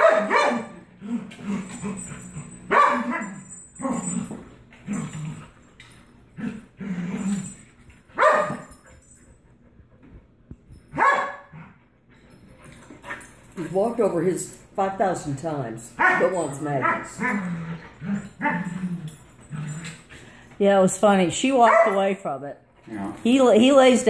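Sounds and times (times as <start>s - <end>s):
dogs barking: 0.0s - 1.0s, 1.7s - 4.1s, 8.2s - 8.8s, 10.9s - 11.5s, 16.0s - 17.5s, 21.6s - 22.1s.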